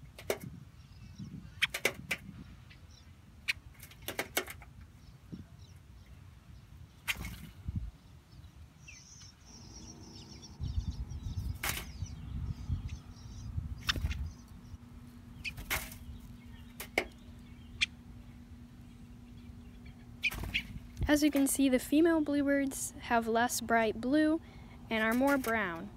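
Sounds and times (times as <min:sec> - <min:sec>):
wing flutters: 0:01.6 - 0:02.4, 0:03.5 - 0:04.7, 0:07.0 - 0:07.7, 0:11.4 - 0:12.0, 0:13.8 - 0:14.6, 0:15.4 - 0:17.2, 0:20.2 - 0:21.6
low rumble: 0:09.5 - 0:15.4.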